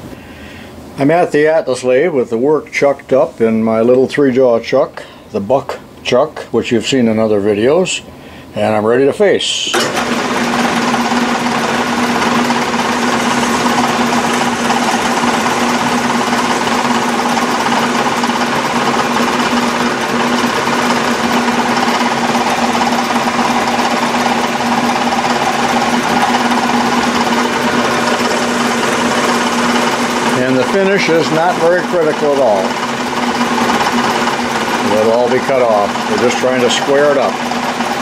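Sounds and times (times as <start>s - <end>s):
metal lathe humming: 9.8s - 38.0s.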